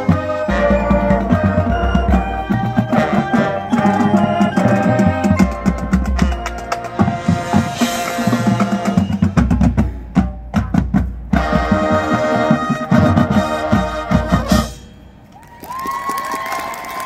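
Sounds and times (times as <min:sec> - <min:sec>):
mallet percussion: 0:00.0 - 0:11.1
marching band brass chords: 0:00.0 - 0:15.2
drum hits: 0:05.4 - 0:11.9.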